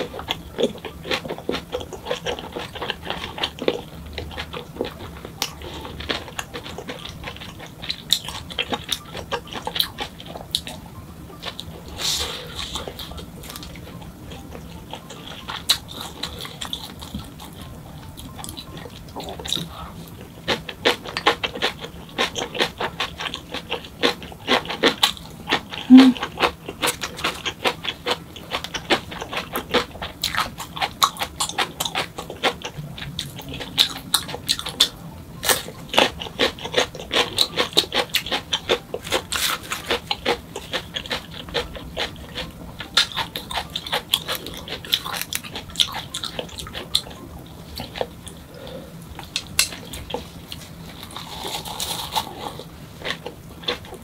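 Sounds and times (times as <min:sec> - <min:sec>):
chewing food: 0:00.0 - 0:54.0
mouth clicks and smacks: 0:25.8 - 0:26.2.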